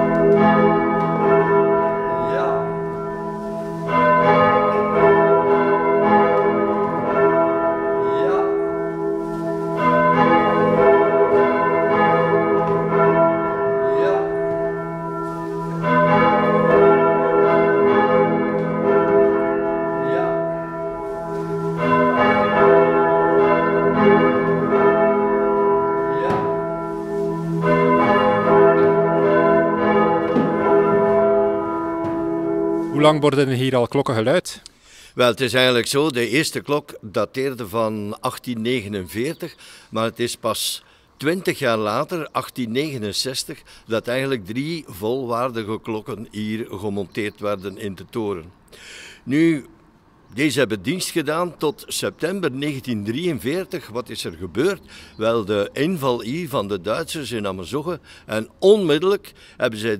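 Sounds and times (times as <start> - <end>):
church bells pealing: 0.0 - 34.4, 35.3 - 59.9.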